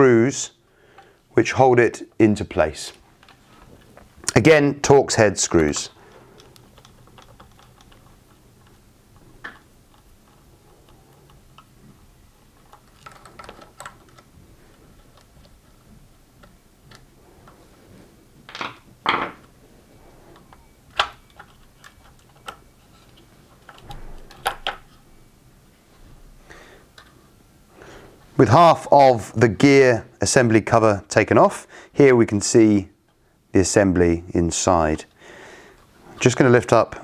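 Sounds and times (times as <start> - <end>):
plastic parts handled: 5.4 - 17.6, 20.3 - 25.0.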